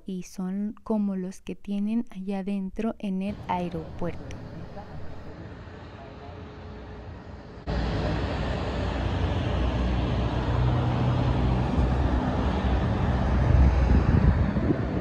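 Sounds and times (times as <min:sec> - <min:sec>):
passing motor vehicles rumble: 0:03.3 - 0:15.0.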